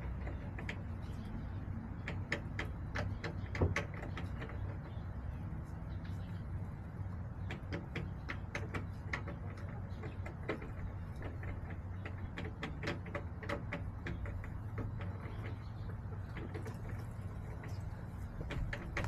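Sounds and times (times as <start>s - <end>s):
chickens pecking: 0.0s - 19.0s
steady low hum: 0.0s - 19.0s.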